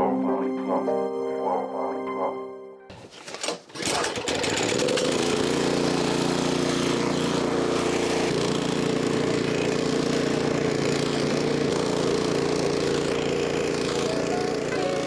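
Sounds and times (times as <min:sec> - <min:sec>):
electric power tool motor: 0:03.1 - 0:15.0.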